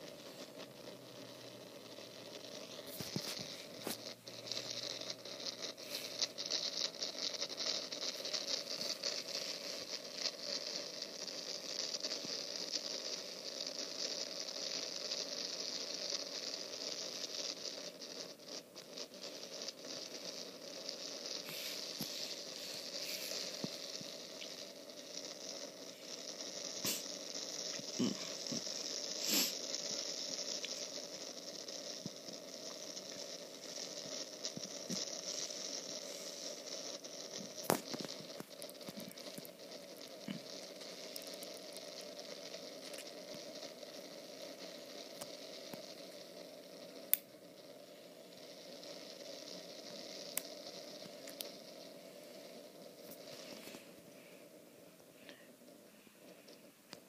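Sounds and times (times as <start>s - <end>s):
wind and rain hiss: 0.0s - 57.0s
sharp ticks: 46.9s - 47.4s, 48.4s - 51.6s.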